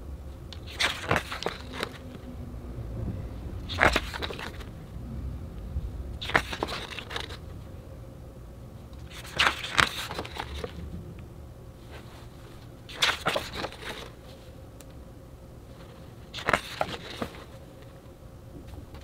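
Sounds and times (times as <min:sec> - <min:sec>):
pages being turned: 0:00.6 - 0:02.3, 0:03.6 - 0:04.7, 0:06.2 - 0:07.5, 0:09.0 - 0:10.8, 0:11.8 - 0:14.4, 0:15.7 - 0:17.6.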